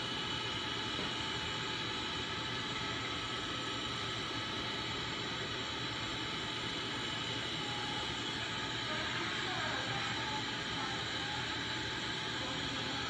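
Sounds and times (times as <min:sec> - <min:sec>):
key-cutting machine whirring: 0:00.0 - 0:08.6.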